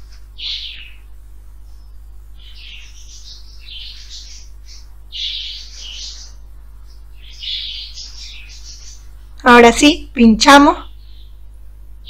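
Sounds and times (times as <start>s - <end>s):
steady low hum: 0.0s - 12.0s
high chirping: 0.4s - 9.6s.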